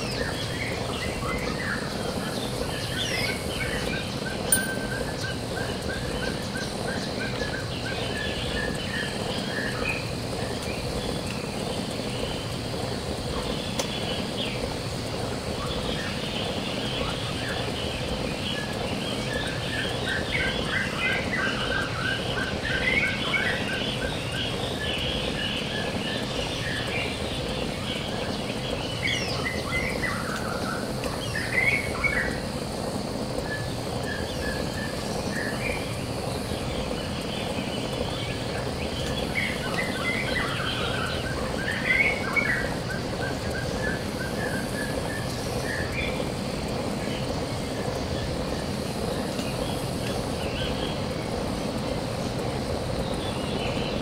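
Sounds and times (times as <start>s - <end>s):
steady background noise: 0.0s - 54.0s
birds chirping and singing: 33.4s - 46.3s.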